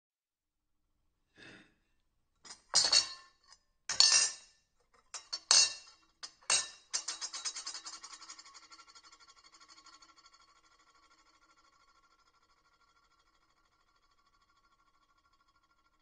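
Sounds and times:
cutlery clattering on a plate: 2.5 - 8.6.

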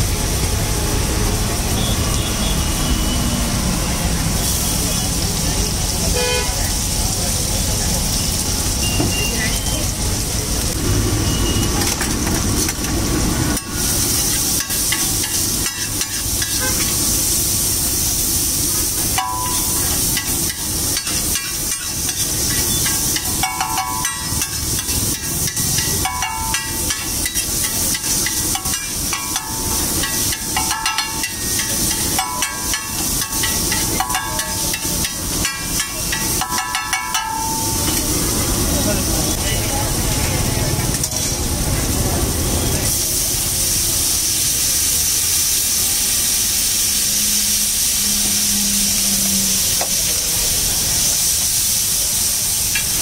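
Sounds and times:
steady sizzle: 0.0 - 53.0
metal spatula chopping on griddle: 13.6 - 17.0, 19.2 - 38.1.

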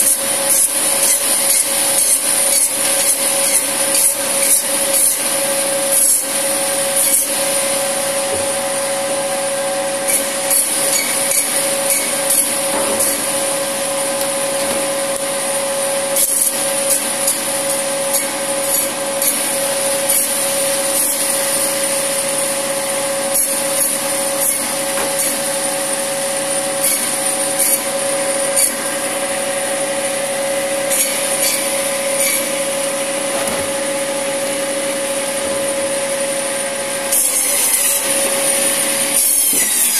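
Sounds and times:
saw blade rasping through bone: 0.0 - 5.3, 10.1 - 13.2, 26.8 - 28.8, 30.9 - 32.5, 37.1 - 38.3, 39.1 - 39.9
band saw whine: 0.0 - 39.9.

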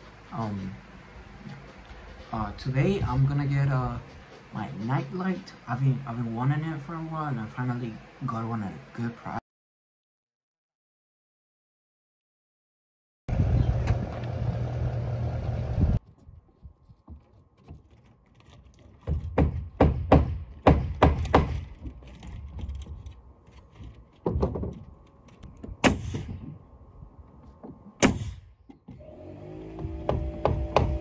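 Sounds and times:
roofing work knocks and thunks: 16.0 - 26.7, 27.3 - 31.0.

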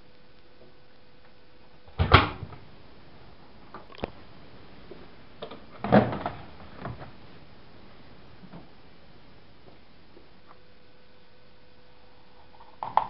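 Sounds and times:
washing machine door clunk: 2.0 - 2.6
detergent drawer clattering: 5.8 - 7.0.

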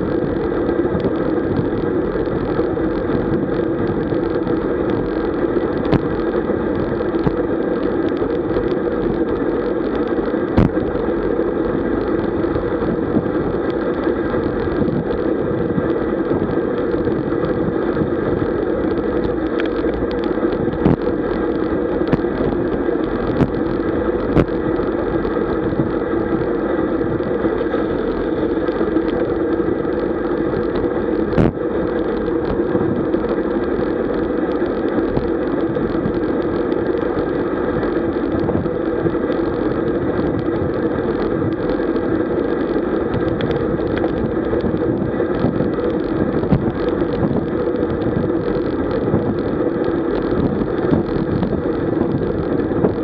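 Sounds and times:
bicycle tyre noise: 0.0 - 53.0.

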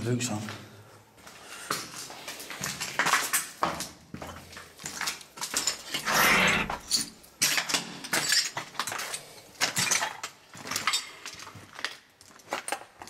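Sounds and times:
clothing brushing against camera: 6.0 - 6.9.

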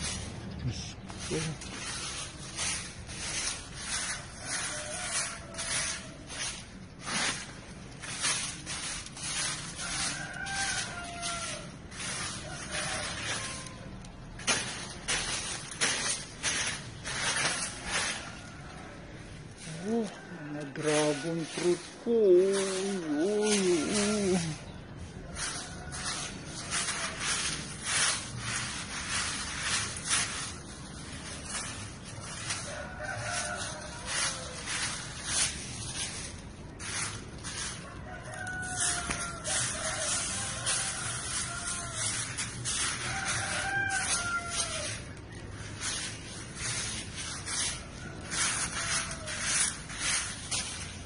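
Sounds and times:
bursts of rustling: 0.0 - 51.0
rooster crowing: 3.8 - 6.6, 8.8 - 14.2, 17.1 - 29.2, 31.4 - 51.0.

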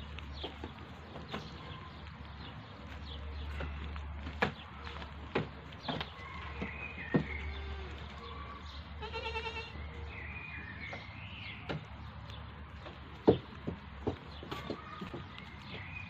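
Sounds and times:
animal bleating: 7.4 - 8.1, 9.0 - 9.8.

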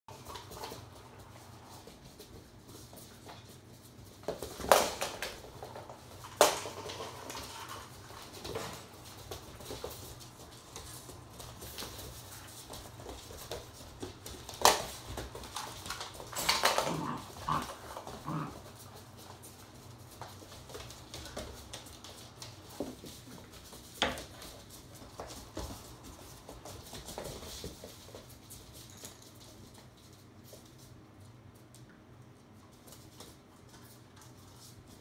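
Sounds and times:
puppy claws pattering on floor: 0.1 - 35.0.

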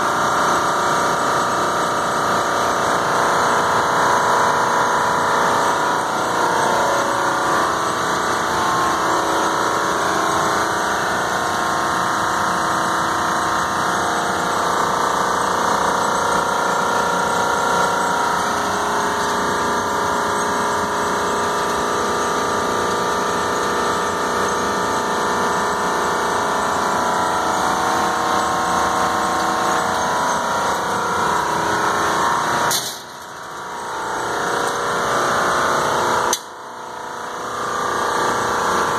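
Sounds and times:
air conditioner machine drone: 0.0 - 38.9.

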